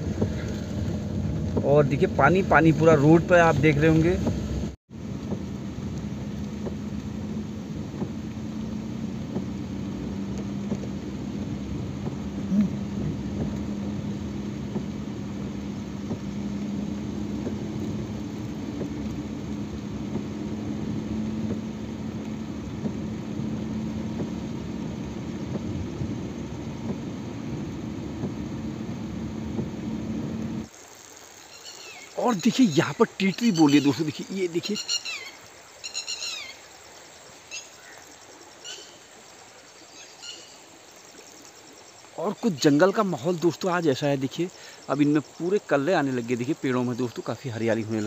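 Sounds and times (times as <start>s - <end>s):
car cabin road rumble: 0.0s - 30.7s.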